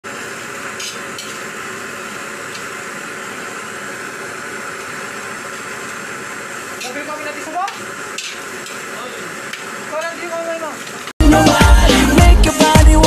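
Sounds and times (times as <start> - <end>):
meat sizzling in a wok: 0.1 - 10.0.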